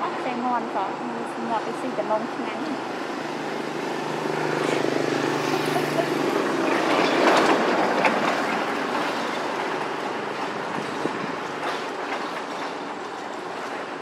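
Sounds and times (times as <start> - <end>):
passing vehicle rushing: 3.1 - 8.7.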